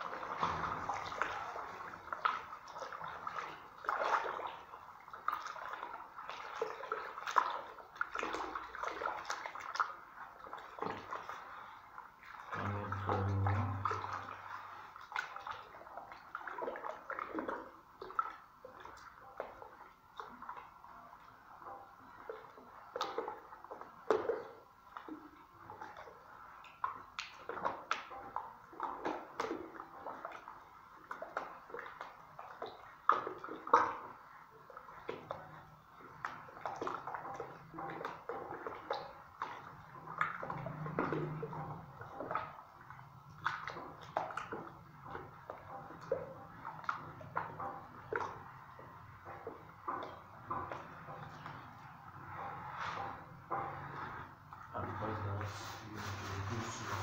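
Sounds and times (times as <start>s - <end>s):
wet putty stirred in bucket: 0.0s - 20.8s, 21.8s - 57.0s.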